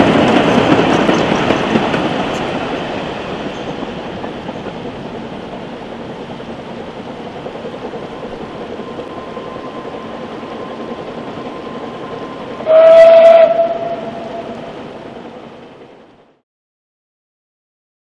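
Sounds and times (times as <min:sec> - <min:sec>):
steam train running: 0:00.0 - 0:16.4
steam locomotive whistle: 0:12.1 - 0:14.8.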